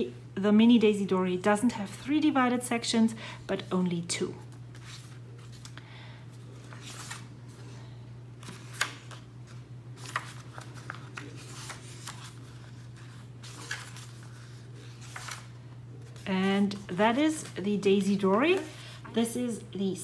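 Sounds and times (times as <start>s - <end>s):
steady low hum: 0.0s - 20.0s
paper pages rustling: 4.4s - 7.8s, 8.4s - 19.1s.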